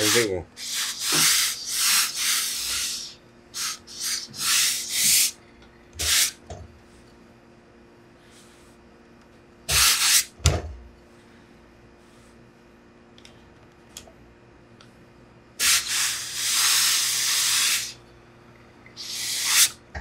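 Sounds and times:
steam iron hissing: 0.0s - 5.4s, 6.0s - 6.4s, 15.6s - 18.0s, 19.0s - 19.8s.

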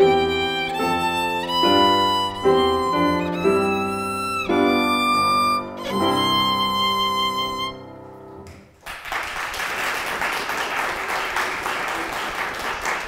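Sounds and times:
violin holding a long note: 0.0s - 8.0s
audience applause: 8.8s - 13.0s.

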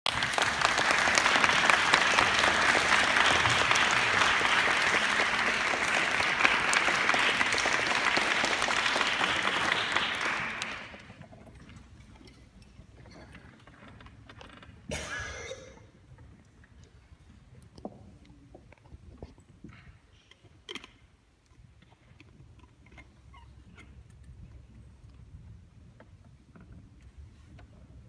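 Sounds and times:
audience applauding: 0.1s - 11.2s.

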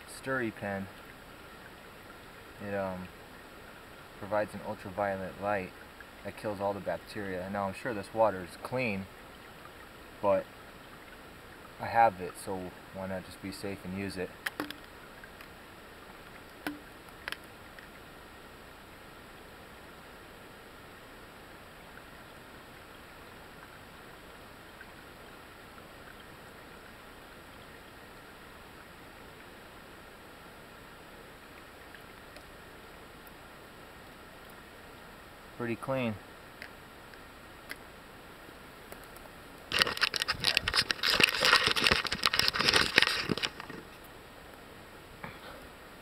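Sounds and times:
tiny water ticks: 0.0s - 18.1s, 31.5s - 33.4s, 34.0s - 34.7s, 36.4s - 38.0s, 38.8s - 44.6s
creek trickling: 0.0s - 46.0s
camera handling crackles and knocks: 14.5s - 14.9s, 39.7s - 44.0s.

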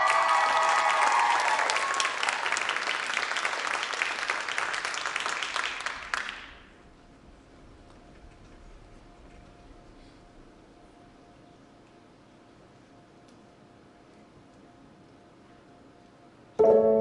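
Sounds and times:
audience applauding and cheering: 0.0s - 6.6s.

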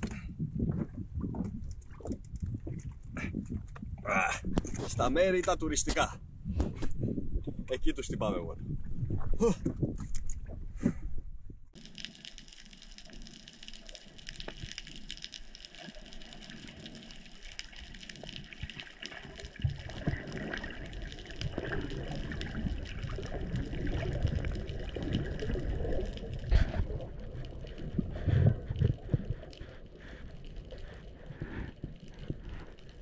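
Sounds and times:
underwater hiss with crackles: 11.8s - 27.7s
low rushing of water: 11.8s - 33.0s.

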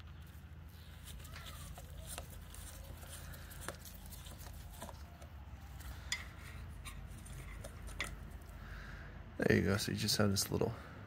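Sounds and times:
low steady background noise: 0.0s - 11.0s
screwdriver clicks and metal scrapes: 1.1s - 8.5s.

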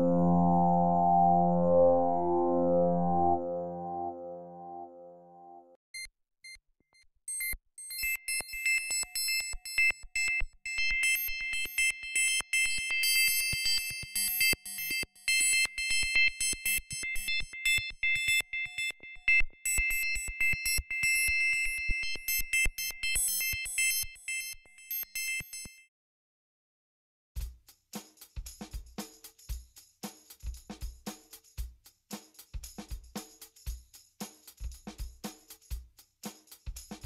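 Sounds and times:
electronic music: 0.0s - 5.6s.

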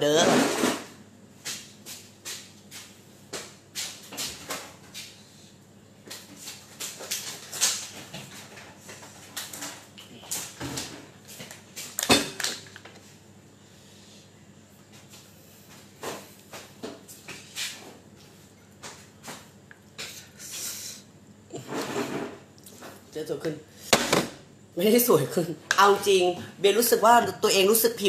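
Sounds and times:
objects knocking and clattering: 7.0s - 13.0s.

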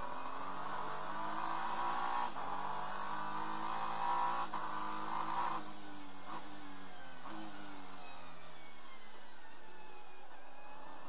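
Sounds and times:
race car engine accelerating: 0.0s - 11.0s.

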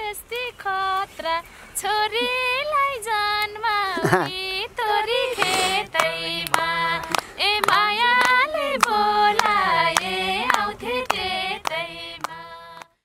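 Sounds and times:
women singing folk song: 0.0s - 13.0s
hand claps: 5.4s - 13.0s.

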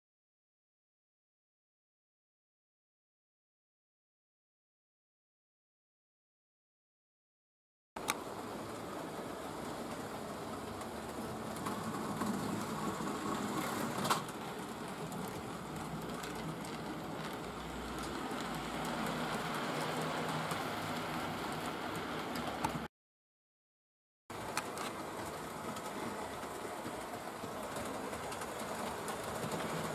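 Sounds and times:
model train wheels rumbling: 8.0s - 22.9s, 24.3s - 29.9s
clicks at rail joints: 10.6s - 22.9s.

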